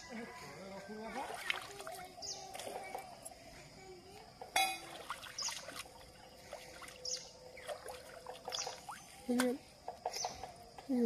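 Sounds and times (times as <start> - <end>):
water sloshing in steel bowl: 0.9 - 2.9, 4.6 - 7.0.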